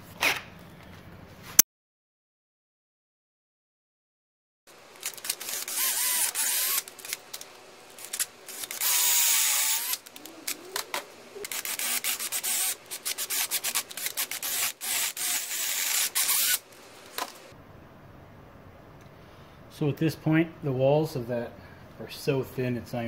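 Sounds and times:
wavering drill whine: 5.0 - 7.2, 7.9 - 16.7
drill bit grinding metal: 5.1 - 7.2, 8.0 - 16.7.

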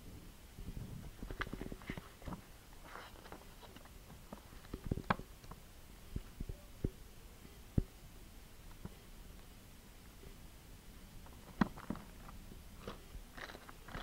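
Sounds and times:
rustle of wrapping: 1.1 - 4.8.

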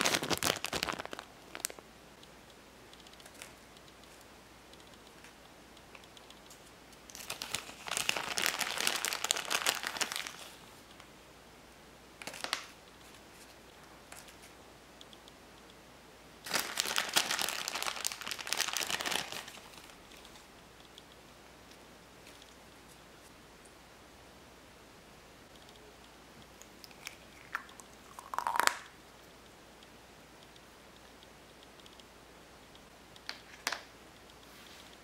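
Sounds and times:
crinkly plastic handling: 0.0 - 1.8, 7.1 - 10.6, 16.4 - 20.4.

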